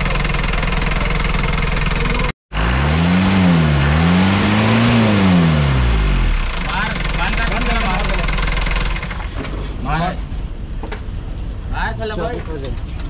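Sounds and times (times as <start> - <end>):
diesel truck engine idling: 0.0 - 2.3, 3.9 - 9.4.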